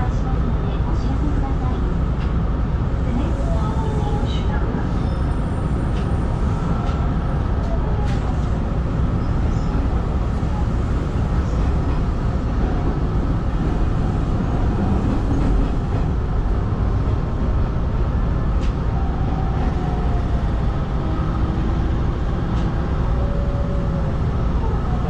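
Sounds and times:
electric train rumbling on rails: 0:00.0 - 0:25.0.

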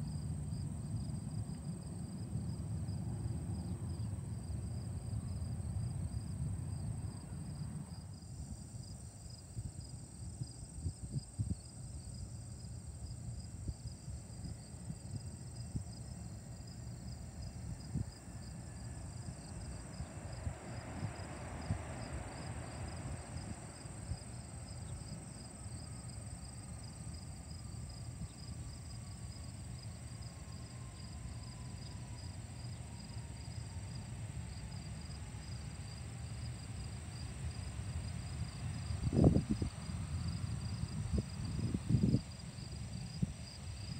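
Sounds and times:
insects chirping: 0:00.0 - 0:43.9
wind rumble: 0:32.5 - 0:43.9.

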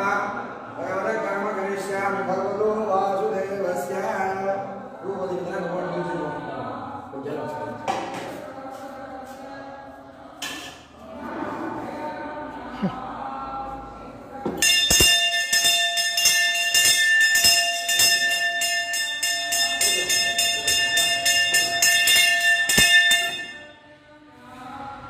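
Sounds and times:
brass hand bell ringing: 0:14.6 - 0:23.8.

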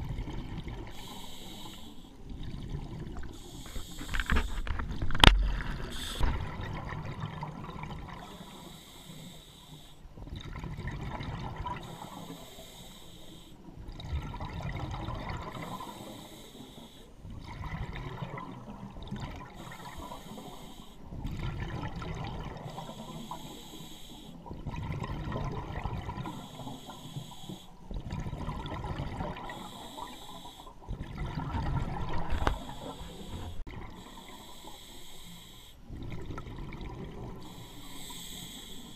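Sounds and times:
exhaled air bubbling: 0:00.0 - 0:38.9
diver breathing through regulator: 0:00.8 - 0:02.2, 0:03.2 - 0:06.3, 0:08.2 - 0:10.0, 0:11.8 - 0:13.7, 0:15.5 - 0:17.2, 0:19.6 - 0:21.1, 0:22.6 - 0:24.4, 0:26.1 - 0:27.8, 0:29.3 - 0:30.8, 0:32.1 - 0:35.9, 0:37.3 - 0:38.9.

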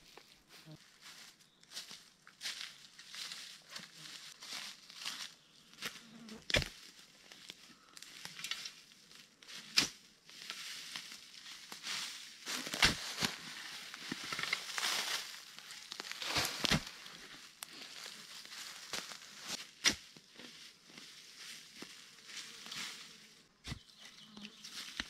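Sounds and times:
digging tool striking soil: 0:06.5 - 0:06.8, 0:09.7 - 0:10.0, 0:12.5 - 0:13.4, 0:16.0 - 0:17.0, 0:18.9 - 0:20.2, 0:23.6 - 0:24.0
sand crunching and scraping: 0:09.5 - 0:25.0.

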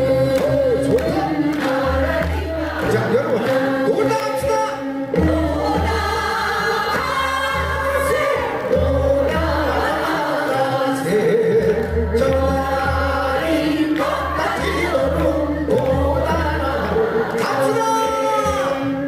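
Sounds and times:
amplified accompaniment with pulsing beat: 0:00.0 - 0:19.0
group singing folk song in chorus: 0:00.0 - 0:19.0.

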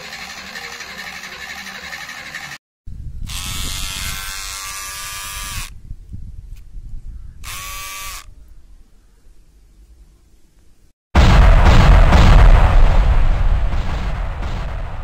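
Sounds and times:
hair trimmer motor whining: 0:00.0 - 0:02.6, 0:03.2 - 0:05.7, 0:07.4 - 0:08.3.

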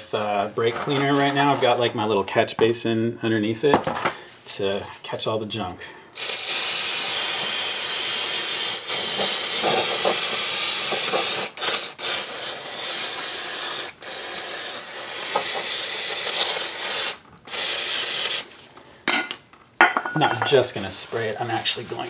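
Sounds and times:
aerosol can spraying: 0:06.2 - 0:18.6.

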